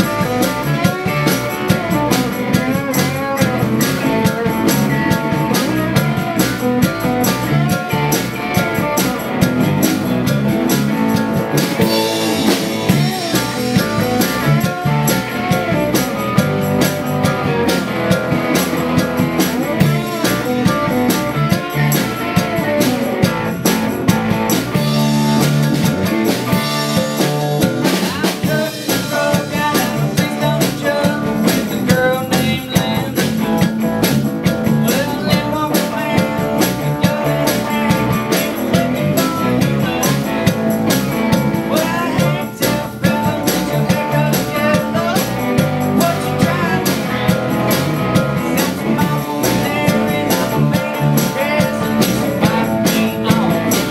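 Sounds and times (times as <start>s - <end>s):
country-rock band playing: 0.0s - 53.9s
tambourine: 0.0s - 53.9s
person singing: 11.7s - 23.4s, 26.4s - 33.7s, 34.6s - 53.9s.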